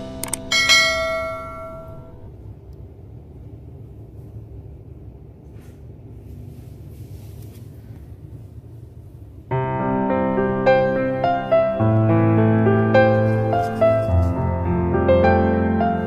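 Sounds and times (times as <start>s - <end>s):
bell chime sound effect: 0.0s - 2.2s
low ambient rumble: 0.0s - 16.0s.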